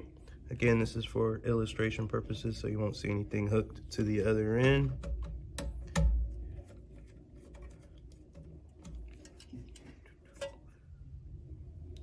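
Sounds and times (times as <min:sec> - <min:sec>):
light handling noise: 0:03.8 - 0:10.8.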